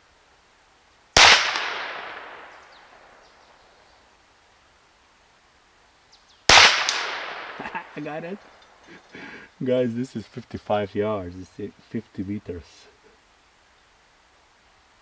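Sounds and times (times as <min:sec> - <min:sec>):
air pistol shots: 0:01.2 - 0:02.6, 0:06.5 - 0:07.6.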